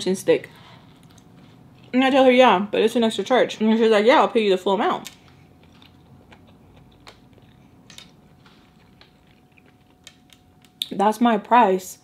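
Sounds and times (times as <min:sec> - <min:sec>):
person chewing: 0:00.8 - 0:01.9, 0:05.2 - 0:10.8.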